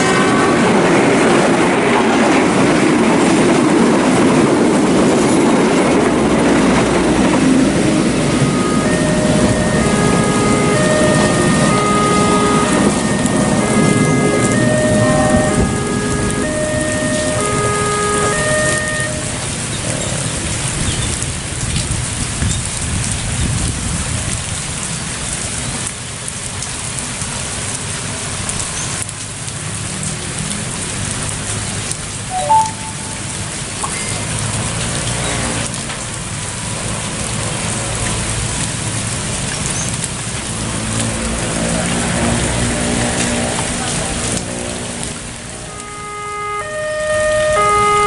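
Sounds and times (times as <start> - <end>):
heavy rain falling: 0.0 - 48.0
short beep: 8.4 - 19.4, 32.3 - 33.3
motorcycle and car engines: 33.5 - 45.8.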